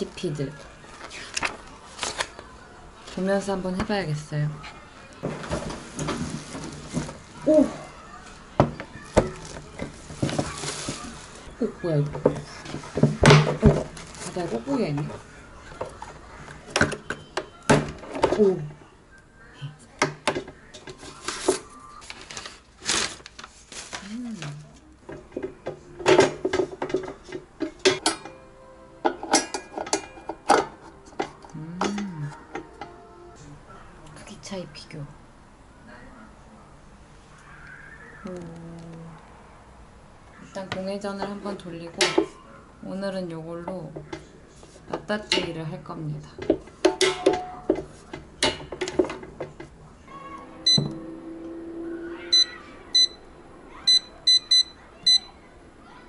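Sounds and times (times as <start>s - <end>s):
air fryer parts clacking: 29.1s - 31.4s.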